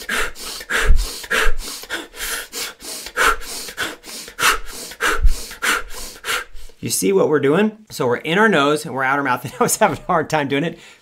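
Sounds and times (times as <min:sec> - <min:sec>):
man breathing rapidly: 0:00.0 - 0:06.8, 0:10.8 - 0:11.0.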